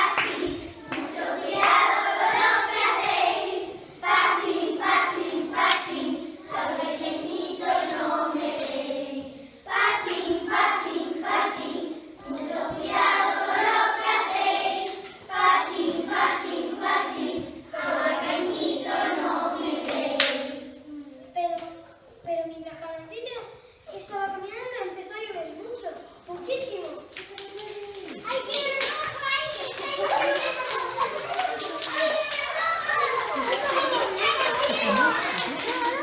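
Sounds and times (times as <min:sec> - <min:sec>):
children singing in unison: 0:00.0 - 0:20.8.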